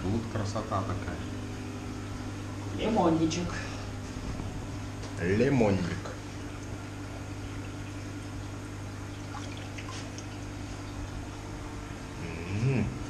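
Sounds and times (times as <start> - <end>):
low electrical hum: 0.0 - 13.0
water trickling and splashing: 6.4 - 11.5.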